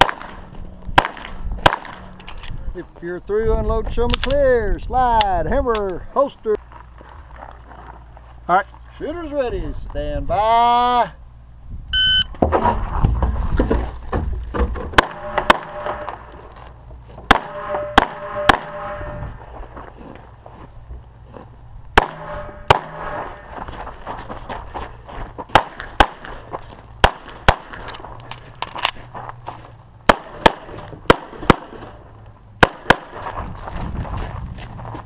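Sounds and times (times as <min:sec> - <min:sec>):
pistol shots: 0:00.0 - 0:02.1, 0:15.0 - 0:16.3, 0:17.3 - 0:19.2, 0:22.0 - 0:23.3, 0:25.5 - 0:26.4, 0:27.0 - 0:27.9, 0:30.1 - 0:32.0, 0:32.6 - 0:33.2.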